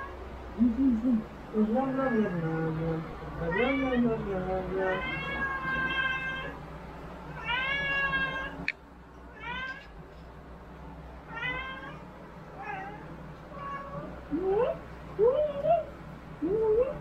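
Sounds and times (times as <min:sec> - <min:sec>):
cat meowing: 0:04.8 - 0:06.6, 0:07.4 - 0:08.6, 0:09.3 - 0:09.9, 0:11.3 - 0:12.0, 0:12.6 - 0:14.1.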